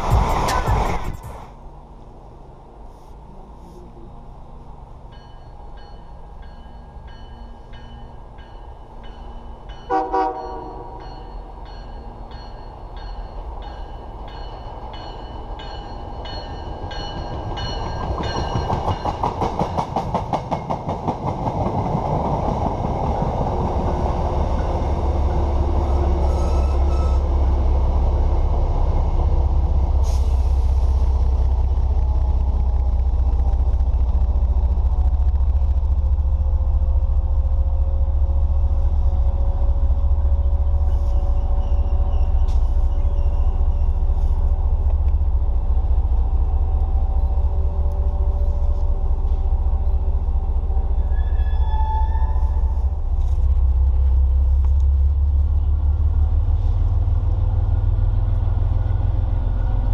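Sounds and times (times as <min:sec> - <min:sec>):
train rumbling by: 0:00.0 - 0:59.9
train wheels clattering over joints: 0:14.4 - 0:24.8.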